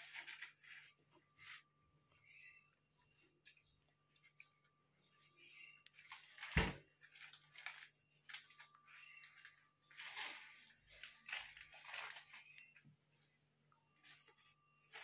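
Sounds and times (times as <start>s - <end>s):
plastic wrapper crinkling: 0.0s - 1.7s, 5.8s - 12.9s.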